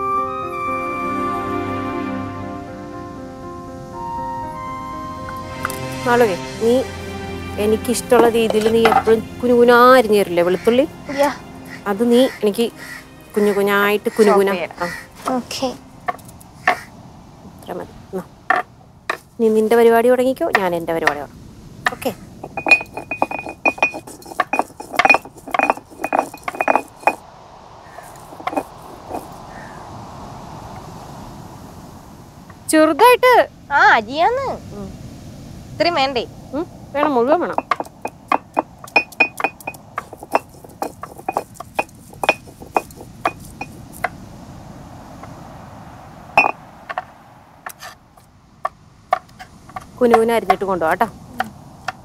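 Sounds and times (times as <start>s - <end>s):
rough scraping: 7.6s - 9.6s, 10.4s - 16.9s, 21.9s - 27.2s, 27.9s - 29.4s, 37.5s - 44.1s, 47.7s - 48.2s
light taps on stone: 8.2s - 9.2s, 21.9s - 27.2s, 37.0s - 44.1s
sharp knocks with ringing clink: 21.9s - 27.2s, 37.0s - 43.7s
stone roller crushing garlic: 21.9s - 27.2s, 28.0s - 29.3s, 37.6s - 43.8s.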